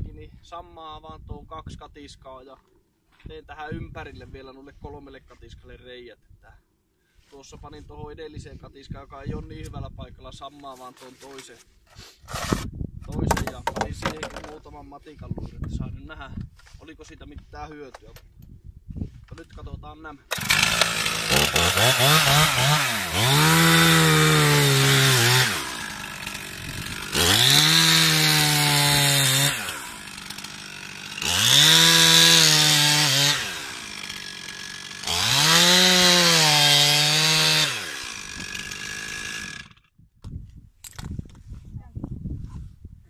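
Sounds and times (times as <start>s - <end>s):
chainsaw cutting ice: 12.3s - 12.7s, 20.3s - 39.8s.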